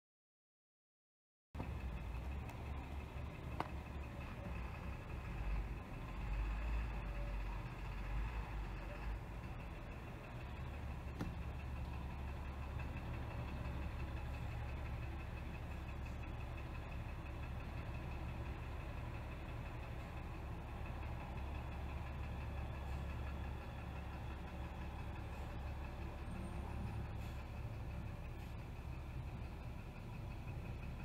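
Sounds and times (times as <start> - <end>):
truck engine rumbling: 1.6 - 31.0.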